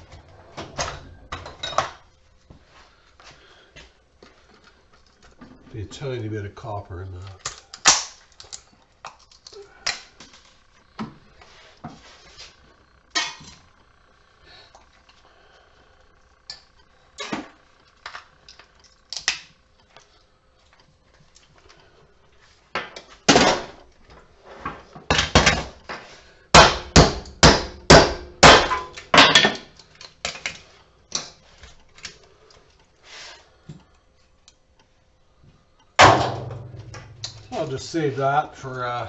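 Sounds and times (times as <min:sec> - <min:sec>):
hammer striking metal: 0:36.0 - 0:37.6.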